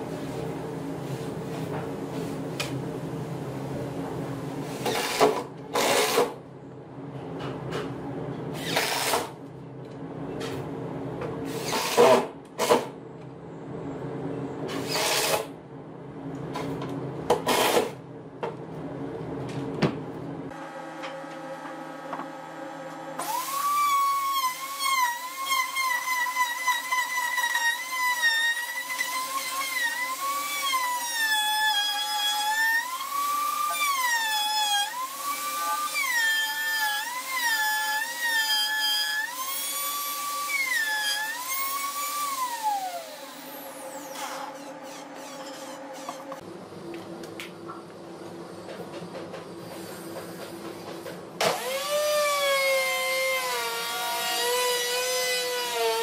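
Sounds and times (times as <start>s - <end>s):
steady machine hum: 15.5s - 23.3s, 42.8s - 51.4s
router cutting wood: 23.1s - 46.4s, 51.4s - 56.0s.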